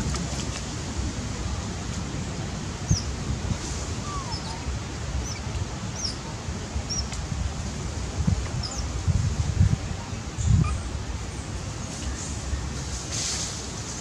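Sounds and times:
low wind rumble: 0.0 - 14.0.

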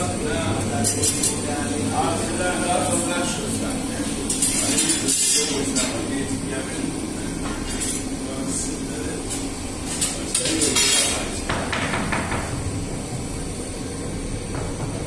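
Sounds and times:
low machine hum: 0.0 - 15.0
metal oven peel clinking and scraping: 9.8 - 11.4.

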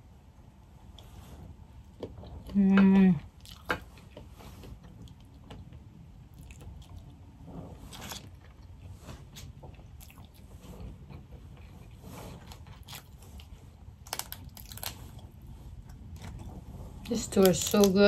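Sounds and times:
person chewing: 3.3 - 7.2, 7.9 - 17.9
crawfish shells cracking: 14.0 - 15.2, 17.2 - 18.0.

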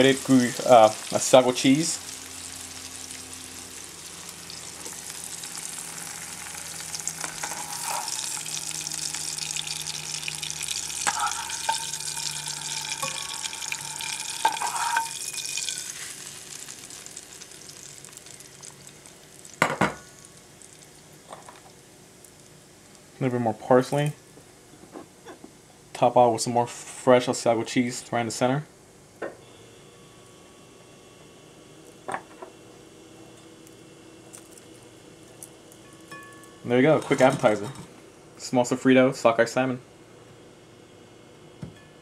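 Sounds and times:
fish sizzling in a frying pan: 0.0 - 21.3.

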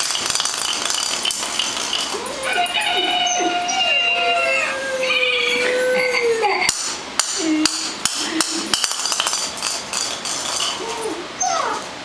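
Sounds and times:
puppy whining: 1.9 - 8.8, 10.7 - 11.9.

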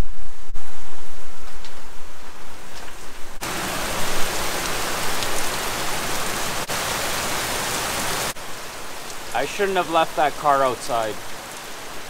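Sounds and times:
heavy rain pouring: 3.4 - 12.0.

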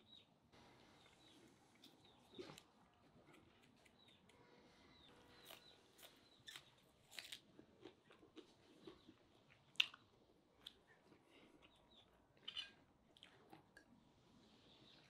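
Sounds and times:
person chewing: 1.2 - 4.4, 5.0 - 13.9
crunchy bites: 5.3 - 9.1.

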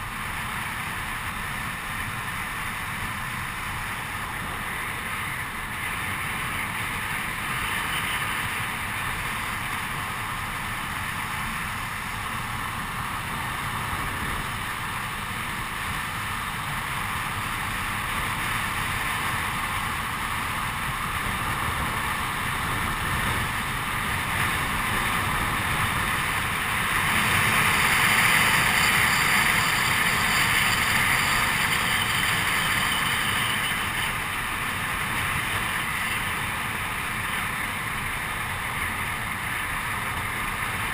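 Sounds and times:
longboard wheels rolling on asphalt: 0.0 - 40.9
wind rushing over microphone: 0.1 - 40.9.

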